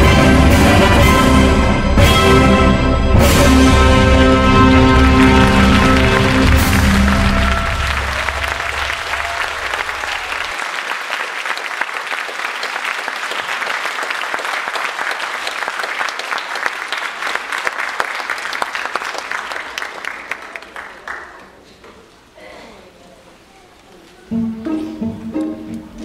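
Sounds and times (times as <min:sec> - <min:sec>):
music: 0:00.0 - 0:09.2, 0:24.3 - 0:26.0
audience applauding: 0:03.8 - 0:21.6.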